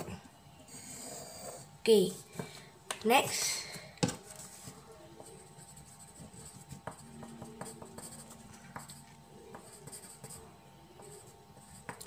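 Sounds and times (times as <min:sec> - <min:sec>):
pen scratching on paper: 0:04.4 - 0:12.0.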